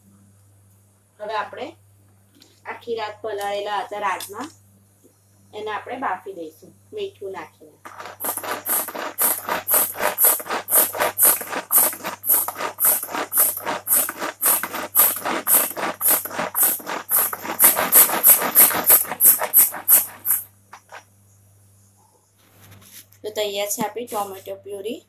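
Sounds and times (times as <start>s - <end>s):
pull-cord food chopper rattling: 7.9s - 21.0s.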